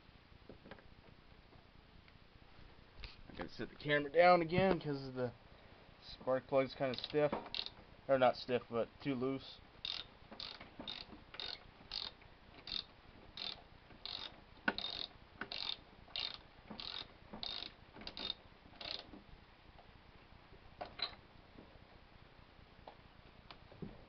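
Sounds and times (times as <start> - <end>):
ratchet wrench clicking: 6.9 - 7.8, 9.8 - 19.1.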